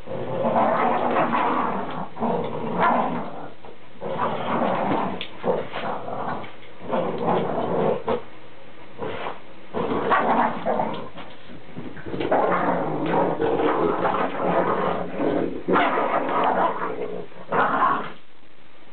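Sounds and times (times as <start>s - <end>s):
dogs play-growling and snarling: 0.0s - 8.3s, 9.0s - 18.2s.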